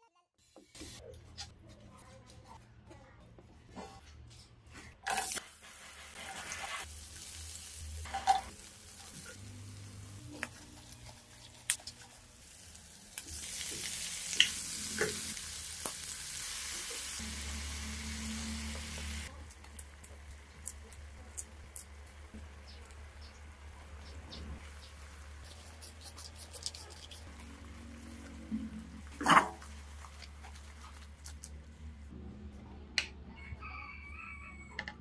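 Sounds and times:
food sizzling in oil: 5.1 - 19.3.

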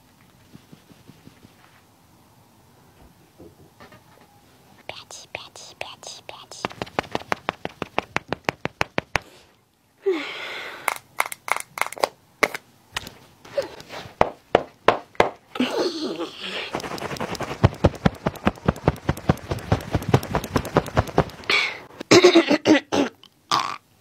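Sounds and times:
makeup sponge patting skin: 0.3 - 1.9, 4.9 - 9.3, 16.6 - 21.6.

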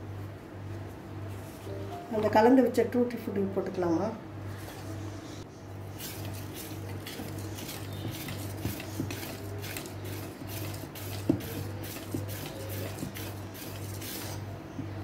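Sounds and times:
whisk stirring thick batter: 5.8 - 14.5
whisk wires clinking on bowl: 6.0 - 14.4.

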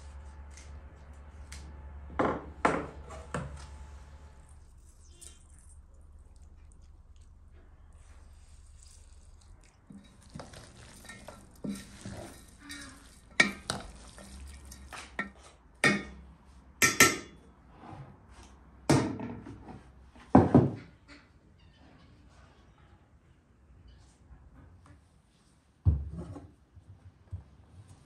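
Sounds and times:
metal spoon scraping enamel bowl: 8.4 - 15.4
spoon clanking on enamel: 9.9 - 16.1.

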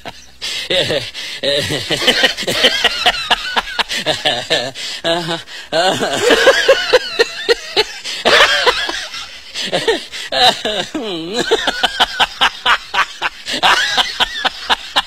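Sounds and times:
people laughing: 0.0 - 15.0
people talking: 0.7 - 2.2, 10.4 - 11.7.

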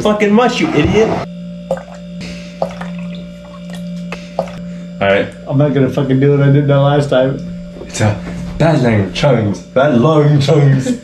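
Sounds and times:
low hum: 0.0 - 11.0
sharp drips: 1.7 - 4.6
liquid pouring into plastic cups: 2.6 - 4.6.

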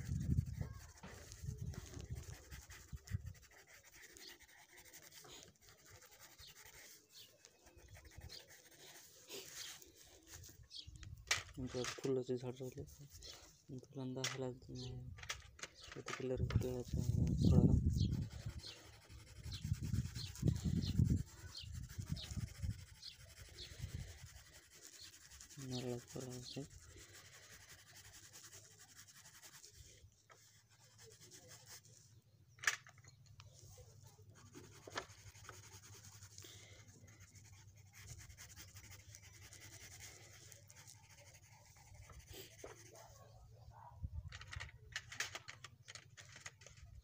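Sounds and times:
pencil shading on paper: 0.0 - 10.4, 16.6 - 31.9, 34.1 - 43.2.

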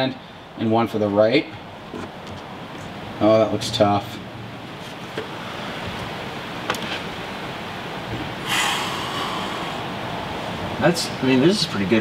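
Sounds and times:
room noise: 4.6 - 12.0
breathy rush of noise: 8.2 - 11.2.

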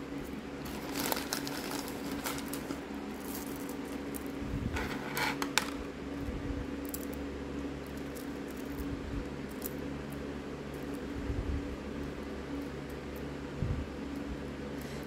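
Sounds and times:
plastic bag crinkling: 0.6 - 4.1
plastic beads clicking and rattling: 0.6 - 5.9.

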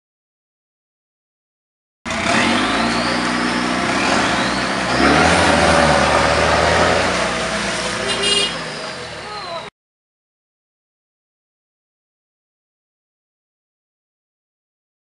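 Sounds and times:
diesel engine revving: 2.1 - 9.7
wheels spinning in mud: 2.1 - 9.7.

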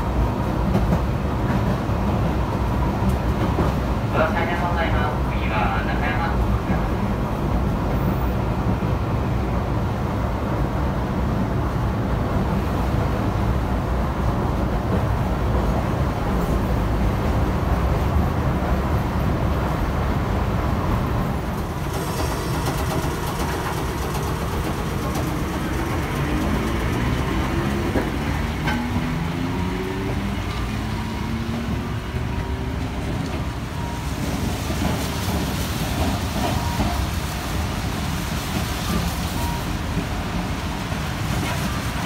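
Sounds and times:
tram wheels and motors rumbling: 0.0 - 42.0
tram motor whine: 20.4 - 35.4.

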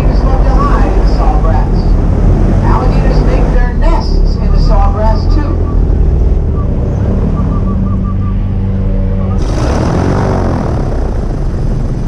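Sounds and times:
airboat engine and propeller: 0.0 - 12.0.

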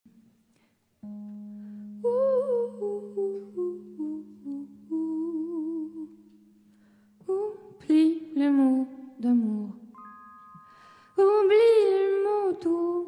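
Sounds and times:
woman singing with vibrato: 2.0 - 6.3, 7.2 - 9.9, 11.0 - 13.0.

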